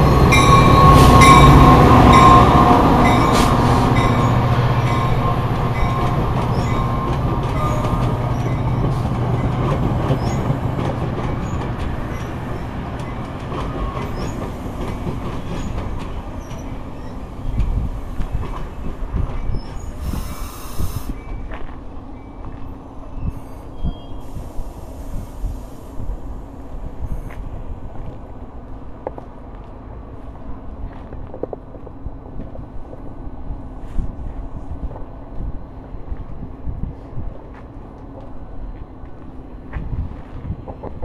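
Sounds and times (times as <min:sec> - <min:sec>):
rail squeal: 0:00.0 - 0:10.6, 0:11.3 - 0:14.6, 0:15.3 - 0:17.8, 0:18.6 - 0:25.9
train rumble: 0:00.0 - 0:41.0
brief hiss: 0:20.0 - 0:21.2.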